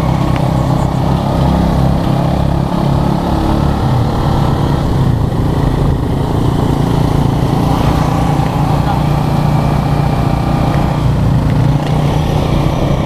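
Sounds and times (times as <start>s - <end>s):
road and wind noise: 0.0s - 13.0s
three-wheeler engine running: 0.0s - 13.0s.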